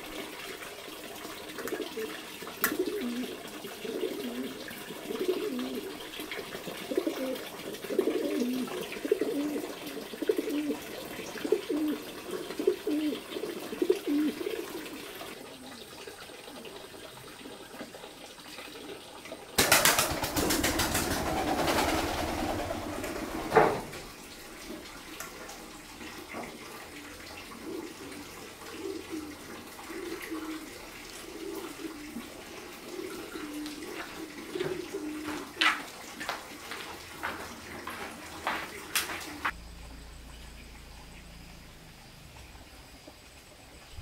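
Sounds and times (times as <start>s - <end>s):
birds cooing: 1.4s - 15.9s, 26.4s - 35.8s.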